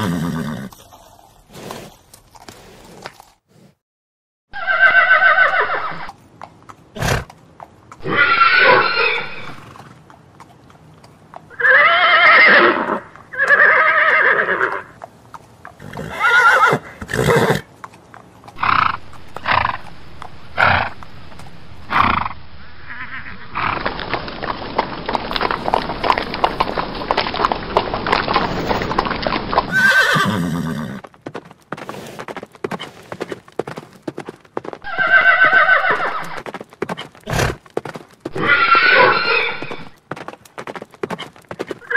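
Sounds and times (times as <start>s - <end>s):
horse neighing: 4.5s - 6.1s, 8.0s - 9.8s, 11.5s - 15.0s, 15.8s - 17.7s, 21.9s - 23.8s, 29.7s - 31.0s, 34.8s - 36.4s, 38.3s - 40.0s.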